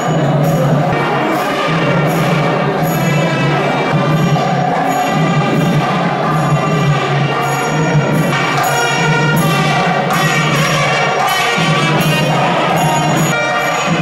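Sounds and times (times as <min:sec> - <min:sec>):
loud music with percussion: 0:00.0 - 0:14.0.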